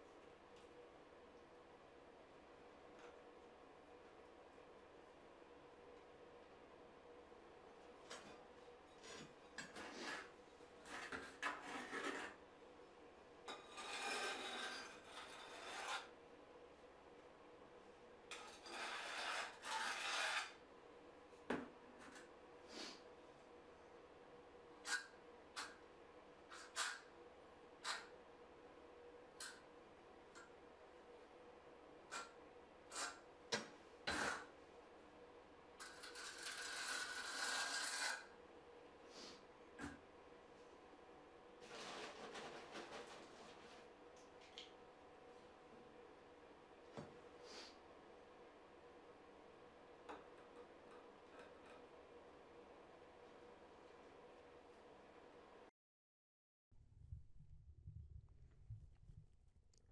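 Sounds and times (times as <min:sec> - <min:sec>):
rasping scraping of tile work: 0:08.1 - 0:12.4, 0:13.5 - 0:16.2, 0:18.3 - 0:20.6, 0:26.5 - 0:27.1, 0:27.8 - 0:28.1, 0:32.1 - 0:33.2, 0:34.1 - 0:34.6, 0:35.8 - 0:38.3, 0:50.4 - 0:51.9.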